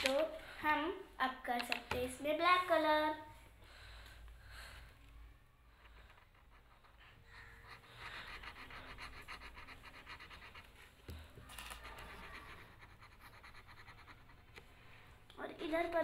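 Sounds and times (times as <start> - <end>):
marker pen scribbling on paper: 5.9 - 15.0.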